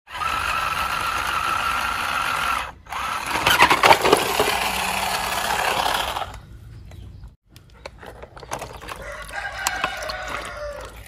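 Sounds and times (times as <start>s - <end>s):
toy truck motor whirring: 0.1s - 6.4s.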